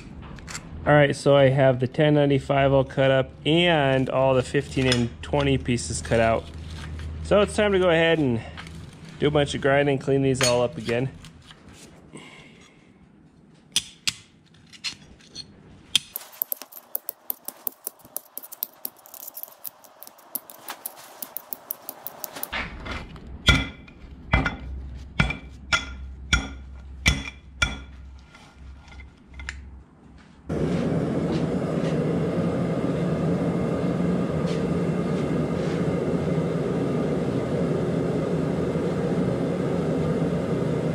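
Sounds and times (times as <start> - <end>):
gas forge burner roaring: 16.2 - 29.8, 30.5 - 40.9.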